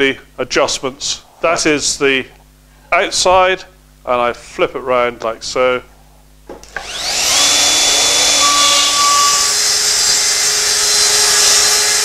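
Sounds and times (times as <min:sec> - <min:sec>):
track saw cutting plywood: 0:06.7 - 0:12.0.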